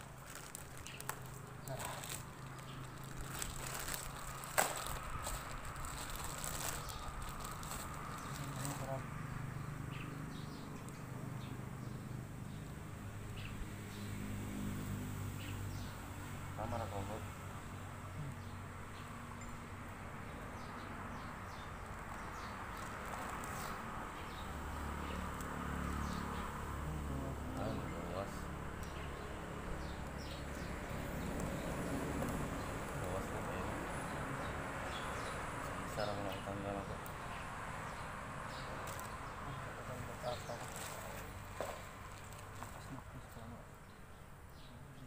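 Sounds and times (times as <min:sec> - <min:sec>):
plastic bags crinkling: 0:00.0 - 0:09.0, 0:21.9 - 0:23.8, 0:38.8 - 0:39.2, 0:40.4 - 0:42.9
birds chirping: 0:00.0 - 0:45.0.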